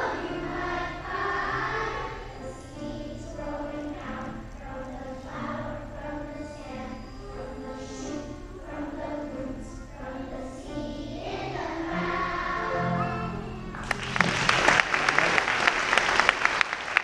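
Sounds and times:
children singing as a choir: 0.0s - 14.0s
audience applause: 13.8s - 17.0s.

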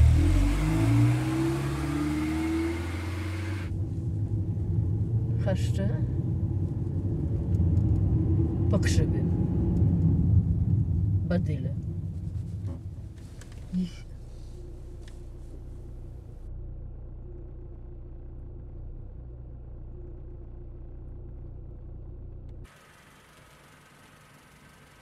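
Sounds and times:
car engine and road rumble: 0.0s - 25.0s.

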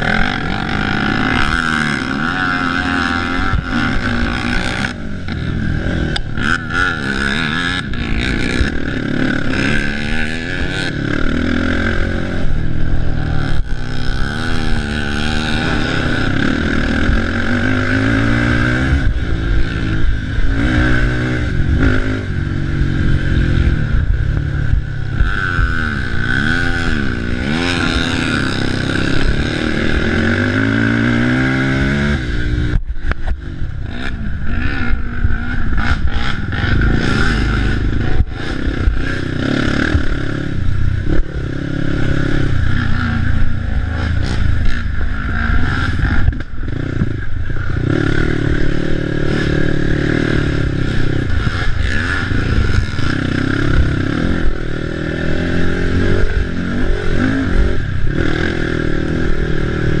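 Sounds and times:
atv engine revving: 0.0s - 60.0s.

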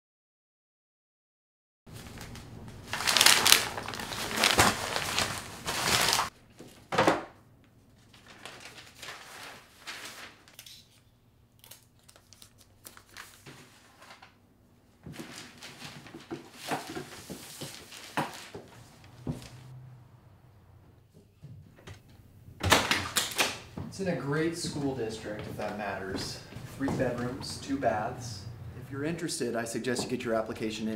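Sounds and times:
plastic wrapping crinkling: 1.9s - 6.3s, 7.9s - 10.8s, 11.6s - 14.4s, 15.2s - 19.6s.

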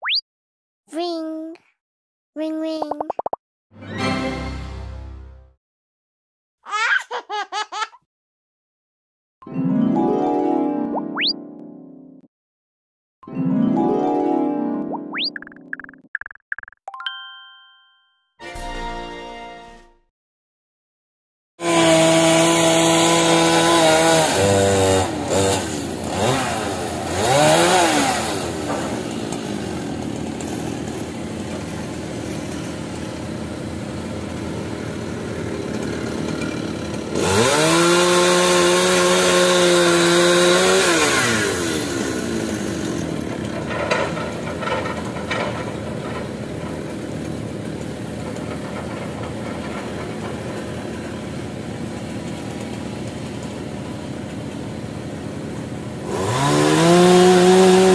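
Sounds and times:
chainsaw revving: 21.6s - 45.7s, 46.3s - 54.6s, 56.0s - 57.9s
excavator diesel engine drone: 31.0s - 37.7s.

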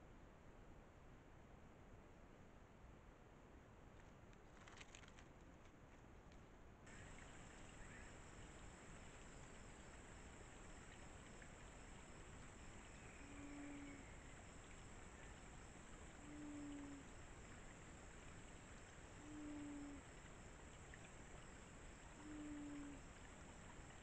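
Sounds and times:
dove cooing: 16.2s - 17.1s, 19.2s - 20.1s, 22.2s - 23.0s.

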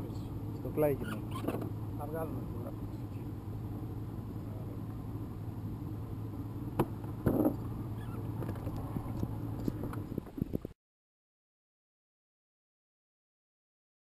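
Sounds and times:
steady low hum: 0.0s - 10.7s
knocks on a boat: 6.8s - 7.6s.

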